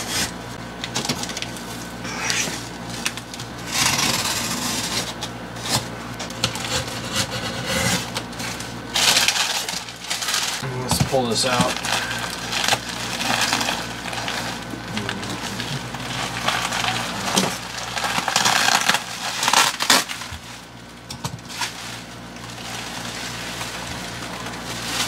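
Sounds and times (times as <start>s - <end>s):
bubble wrap crinkling: 8.0s - 10.6s, 11.3s - 25.0s.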